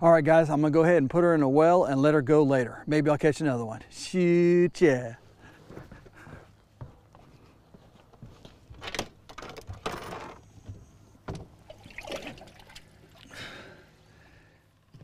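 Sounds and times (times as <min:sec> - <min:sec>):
fish thrashing and splashing: 0:11.6 - 0:13.6.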